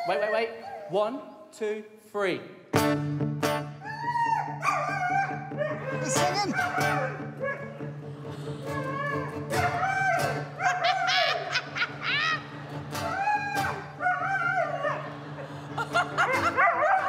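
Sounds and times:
acoustic guitar strumming: 0:02.7 - 0:03.8, 0:05.5 - 0:10.7, 0:11.4 - 0:17.0
dog barking: 0:04.6 - 0:07.7, 0:10.6 - 0:11.1, 0:16.2 - 0:17.0.

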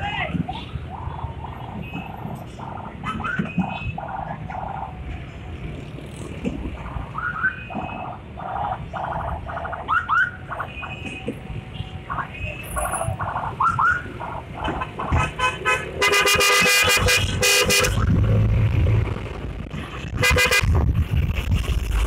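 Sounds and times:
scooter horn honking: 0:15.2 - 0:17.9, 0:20.2 - 0:20.7.

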